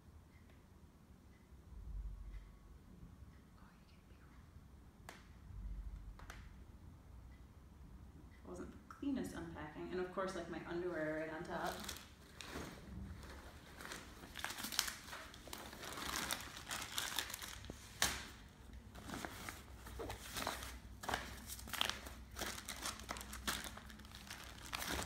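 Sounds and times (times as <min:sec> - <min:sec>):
plastic bags crinkling: 0:11.5 - 0:25.0.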